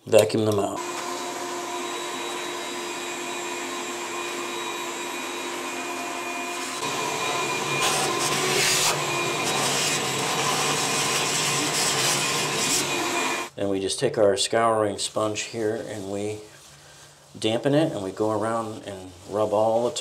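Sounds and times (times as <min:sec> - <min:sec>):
vacuum motor whine: 0:00.8 - 0:13.5
vacuum nozzle hissing on floor: 0:00.8 - 0:13.5.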